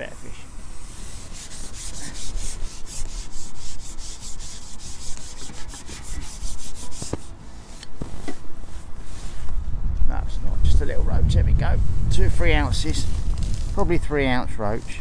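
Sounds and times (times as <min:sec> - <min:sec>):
fishing pole rubbing and scraping: 0:12.3 - 0:15.0.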